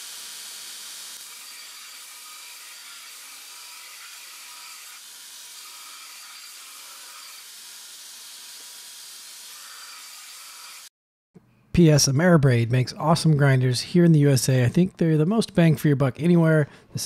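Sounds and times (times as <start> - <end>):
belt grinder grinding steel: 0.0 - 10.9.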